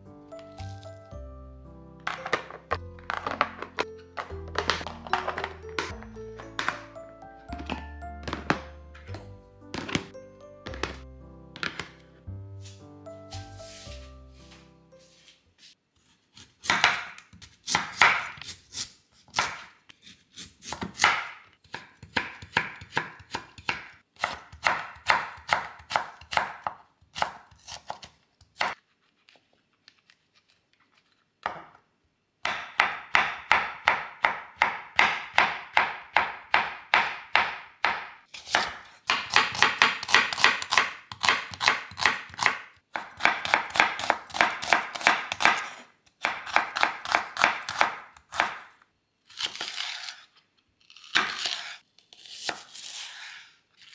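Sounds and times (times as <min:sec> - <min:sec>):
knife chopping on cutting board: 0:16.4 - 0:28.8, 0:32.4 - 0:48.7.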